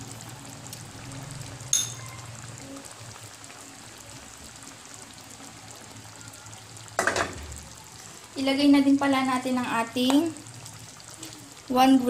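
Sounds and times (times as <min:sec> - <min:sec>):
broth bubbling in a wok: 0:00.0 - 0:12.0.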